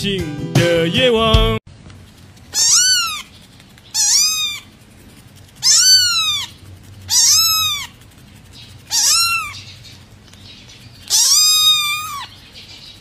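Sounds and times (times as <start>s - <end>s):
kitten meowing: 2.6s - 3.3s, 3.9s - 4.7s, 5.6s - 8.0s, 8.9s - 9.6s, 11.1s - 12.3s.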